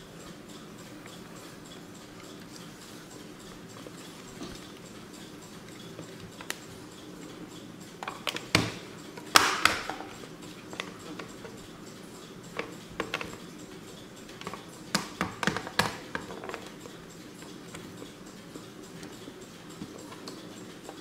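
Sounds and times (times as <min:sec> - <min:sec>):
clock clicking and knocking: 0:03.2 - 0:21.0.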